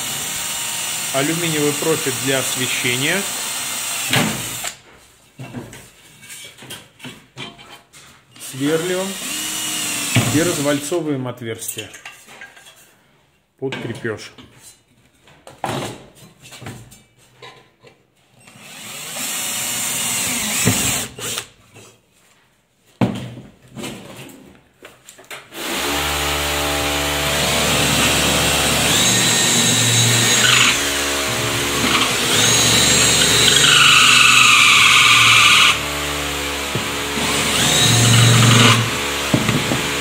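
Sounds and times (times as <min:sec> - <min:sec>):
electric drill boring into metal: 0:00.0 - 0:04.8, 0:09.1 - 0:10.6, 0:18.6 - 0:21.4, 0:25.6 - 0:40.0.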